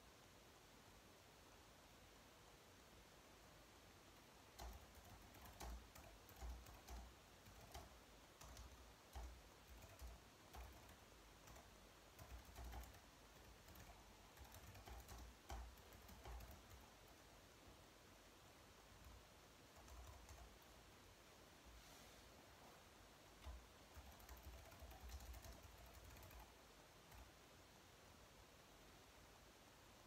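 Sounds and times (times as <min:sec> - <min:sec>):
typing on computer keyboard: 0:04.5 - 0:17.2, 0:19.8 - 0:20.6, 0:23.4 - 0:27.3.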